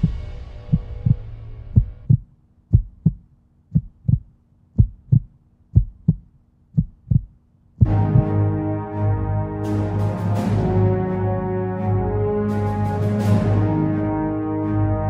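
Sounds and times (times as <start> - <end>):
heartbeat double thumps: 0.0 - 8.4
loud music with brass: 7.8 - 15.0
music drone: 7.8 - 15.0.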